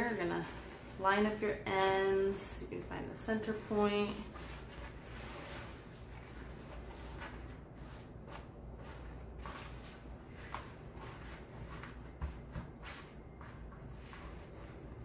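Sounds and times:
ribbon rustling and crinkling: 3.4s - 13.0s.

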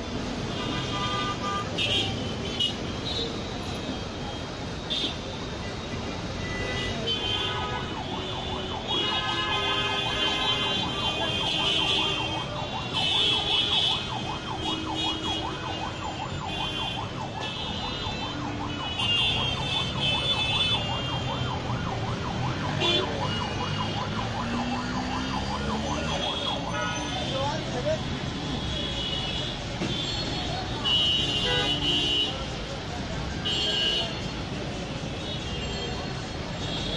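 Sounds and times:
street traffic: 0.0s - 36.9s
siren warbling: 21.2s - 26.7s.

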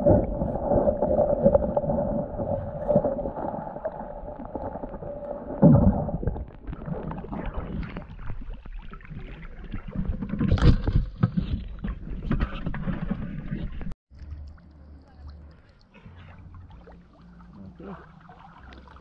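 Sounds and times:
water sloshing and splashing: 0.0s - 19.0s
underwater thump: 5.5s - 8.4s.

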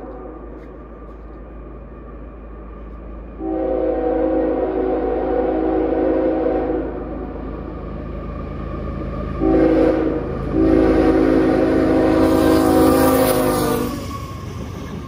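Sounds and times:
low locomotive rumble: 0.0s - 15.0s
train air horn blast: 3.4s - 7.1s, 9.4s - 14.1s.

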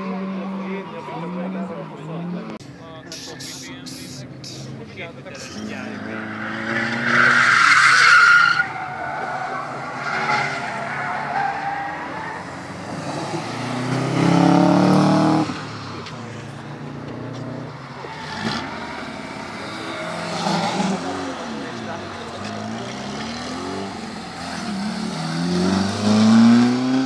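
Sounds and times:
car engines running: 0.0s - 27.0s
tyres screeching: 3.0s - 16.6s.

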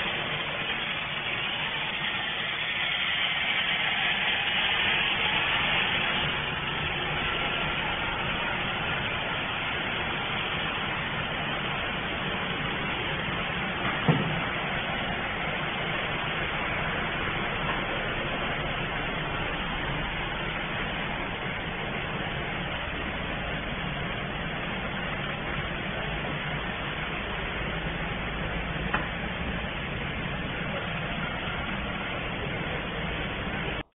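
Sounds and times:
production line hum and hiss: 0.0s - 33.9s.

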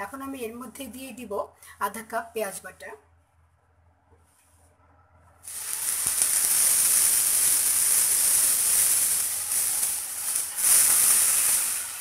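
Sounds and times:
onion paste sizzling in oil: 5.4s - 12.0s.

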